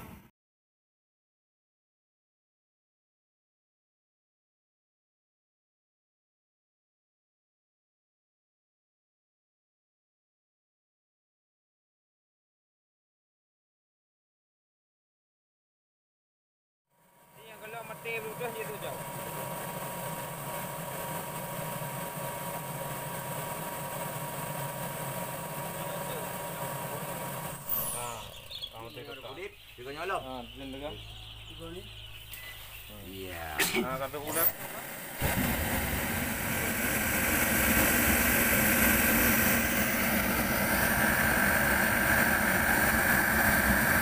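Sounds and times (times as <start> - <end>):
faint high whine: 17.0 - 31.0, 31.6 - 44.0
space heater fan and burner hum: 17.0 - 44.0
thin high tone: 26.9 - 31.0
low hum: 33.4 - 44.0.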